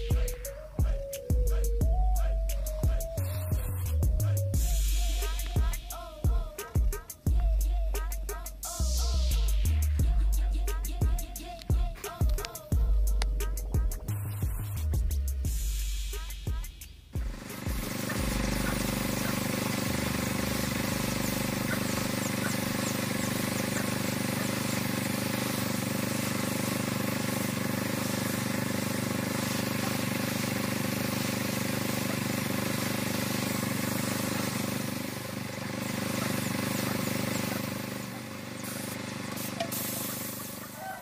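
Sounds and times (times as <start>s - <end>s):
engine running steadily: 0.0s - 16.5s, 17.2s - 41.0s.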